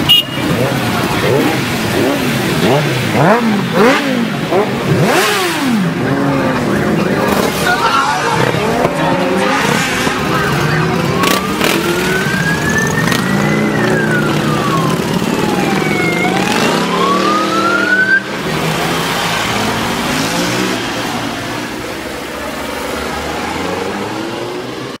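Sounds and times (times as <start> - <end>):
motorcycle engines running: 0.0 - 25.0
wailing siren: 10.1 - 18.6.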